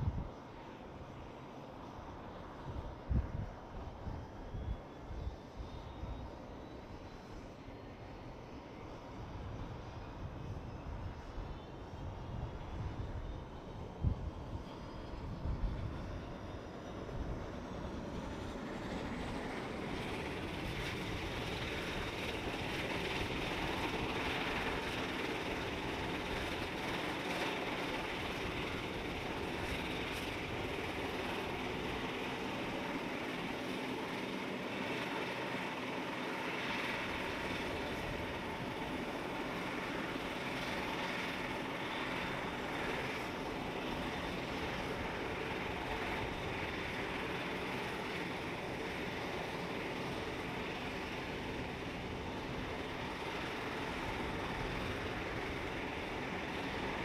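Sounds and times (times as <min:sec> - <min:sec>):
wind rumble on microphone: 0:00.0 - 0:00.4, 0:02.6 - 0:06.2, 0:09.2 - 0:16.3
turboprop engine running: 0:00.0 - 0:57.0.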